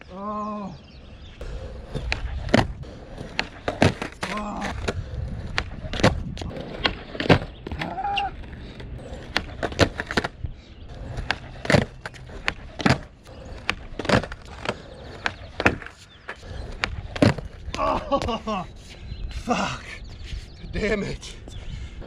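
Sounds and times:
skateboard wheels rolling: 1.1s - 18.9s
skateboard clacking on concrete: 1.4s - 17.8s
skateboard tail popping: 1.7s - 8.6s, 11.0s - 18.4s.

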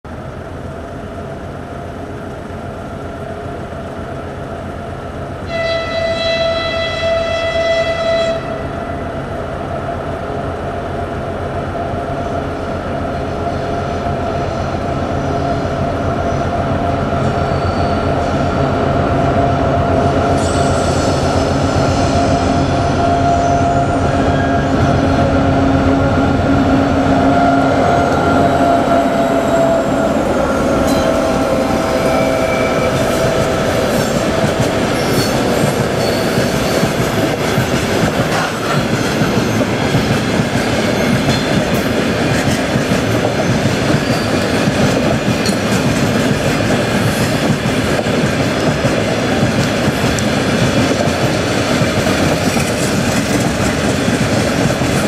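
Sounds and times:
diesel locomotive engine drone: 0.0s - 55.0s
locomotive horn blast: 5.4s - 9.0s, 27.1s - 36.3s.

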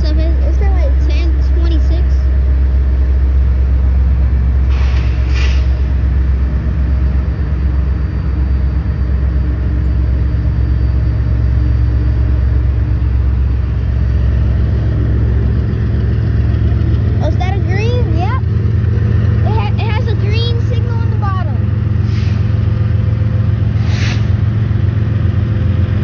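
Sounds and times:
road traffic rumble: 0.0s - 26.0s
brief hiss: 4.7s - 5.8s, 22.0s - 22.5s, 23.8s - 24.4s.

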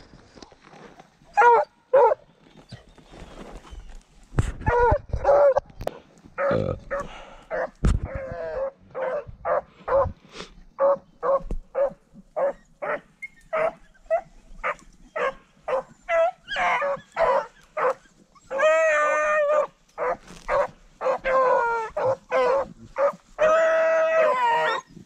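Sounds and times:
dogs barking: 1.4s - 2.2s, 8.6s - 10.2s, 10.8s - 24.9s.

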